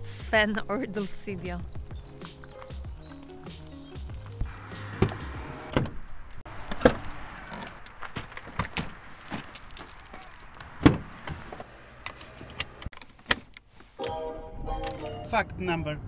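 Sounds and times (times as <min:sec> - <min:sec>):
car doors clunking shut: 0:04.2 - 0:13.5
car handles clicking: 0:04.3 - 0:13.7.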